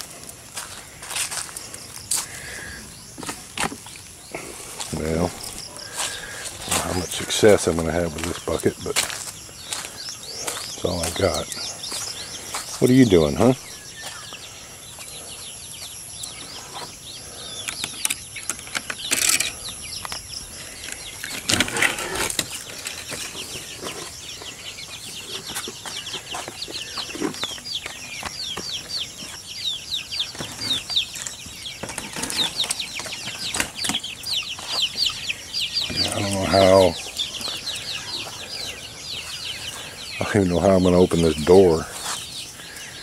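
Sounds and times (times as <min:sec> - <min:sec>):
chickens flapping and scuffling: 0:00.0 - 0:14.2, 0:21.1 - 0:29.5, 0:30.2 - 0:35.2, 0:39.2 - 0:42.4.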